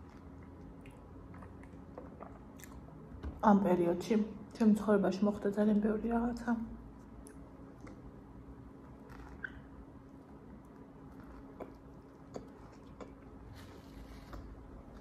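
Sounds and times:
chewing and biting food: 0.0s - 3.0s, 10.6s - 15.0s.

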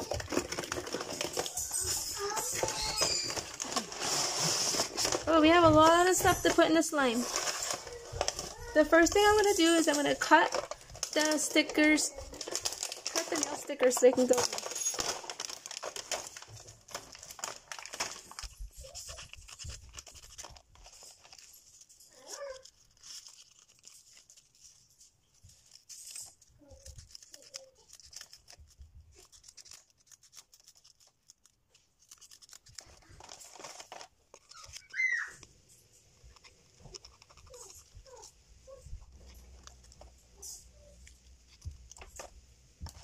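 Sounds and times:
scissors snipping plastic: 0.0s - 21.5s, 26.0s - 35.5s, 36.2s - 38.4s
plastic clicks and crinkles: 0.0s - 43.0s.

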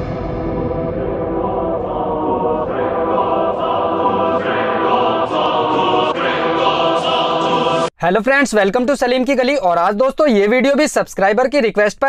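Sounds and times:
music with choir voices: 0.0s - 7.9s.

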